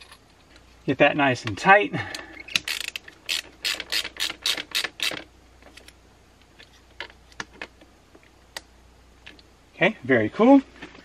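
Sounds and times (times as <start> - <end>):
ratchet wrench clicking: 2.5 - 5.2.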